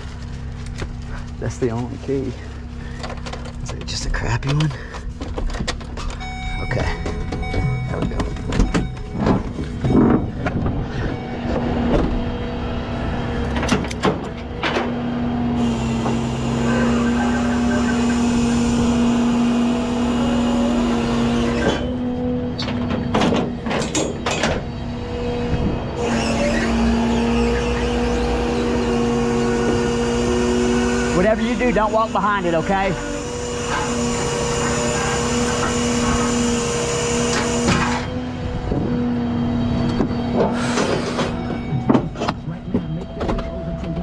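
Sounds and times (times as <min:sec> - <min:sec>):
metal clanks and knocks: 0:06.8 - 0:12.2, 0:22.6 - 0:24.7
hydraulic winch whining: 0:12.8 - 0:42.2.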